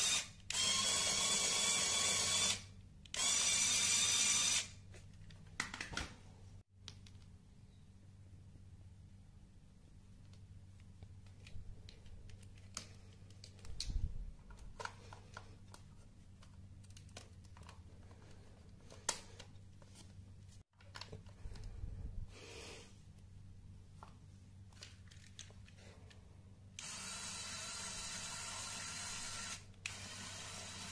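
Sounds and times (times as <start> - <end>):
low steady hum: 6.2 - 30.8.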